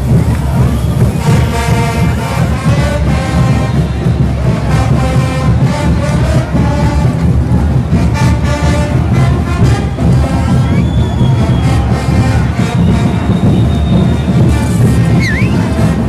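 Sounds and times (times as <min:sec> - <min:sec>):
brass band playing: 0:00.1 - 0:16.0.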